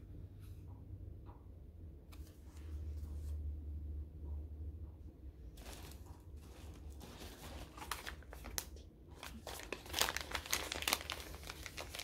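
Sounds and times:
paper bag crinkling: 5.6 - 12.0.

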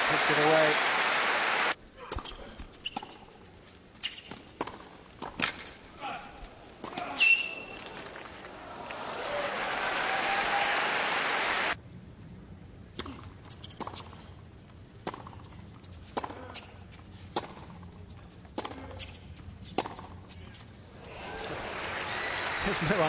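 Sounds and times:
crowd applauding: 0.0 - 1.8, 7.9 - 11.8, 21.1 - 23.0.

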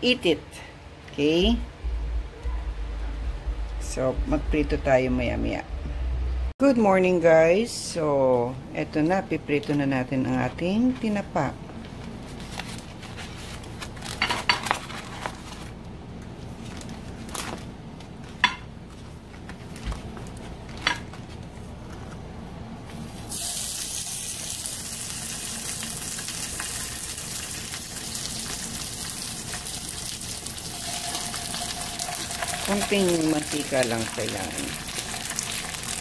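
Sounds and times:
fish sizzling in hot oil: 23.3 - 36.0.

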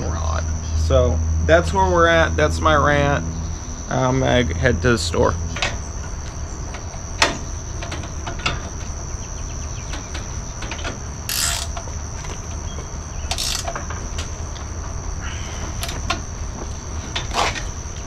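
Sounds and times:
insect drone: 0.0 - 18.0
metallic clicks: 9.9 - 11.9
ratchet wrench ratcheting: 11.3 - 11.8, 13.3 - 13.8.

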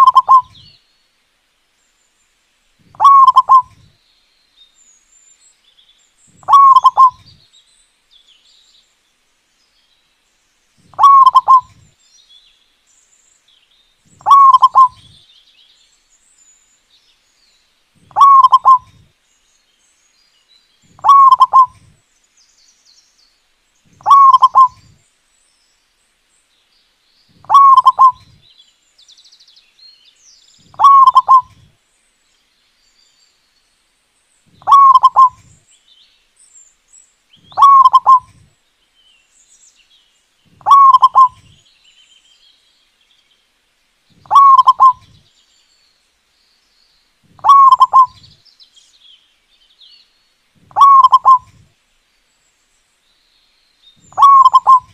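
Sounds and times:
dove cooing: 0.0 - 0.6, 2.8 - 3.9, 6.4 - 7.3, 10.9 - 11.9, 14.2 - 15.2, 18.0 - 19.0, 20.9 - 21.9, 24.0 - 25.0, 27.4 - 28.4, 30.6 - 31.7, 34.6 - 35.6, 37.5 - 38.5, 40.5 - 41.6, 44.2 - 45.2, 47.3 - 48.3, 50.6 - 51.6, 54.1 - 54.9
faint bird chirps: 0.0 - 1.2, 1.8 - 9.0, 9.6 - 43.5, 44.1 - 54.9.

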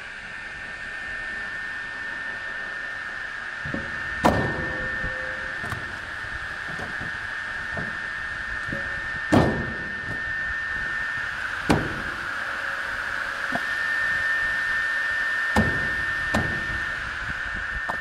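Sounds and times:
circular saw whine: 0.0 - 18.0
sharp knocks: 8.7 - 9.8.

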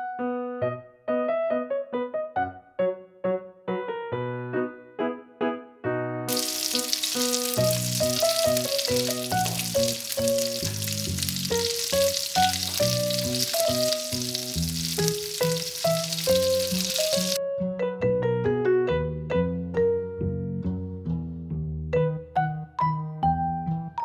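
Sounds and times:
background music: 0.0 - 24.0
food sizzling in oil: 6.3 - 17.4.

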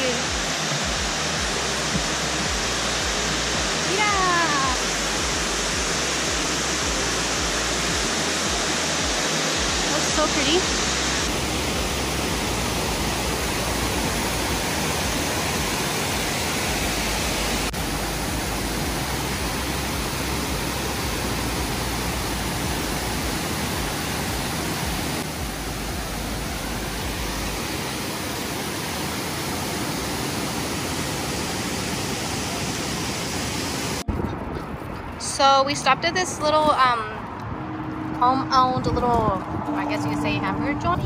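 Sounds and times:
river rapids over rocks: 0.0 - 34.0
waterfall rushing: 0.0 - 34.1.

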